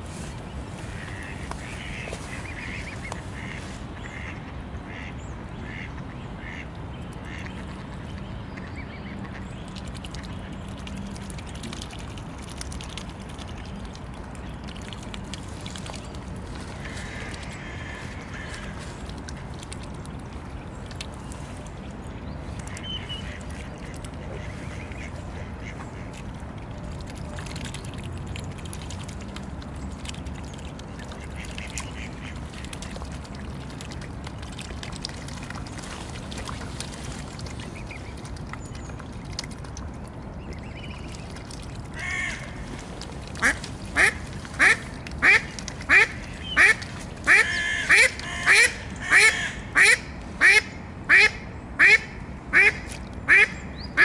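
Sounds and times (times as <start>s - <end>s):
low background rumble: 0.0s - 54.0s
mallard quacking: 43.4s - 53.5s.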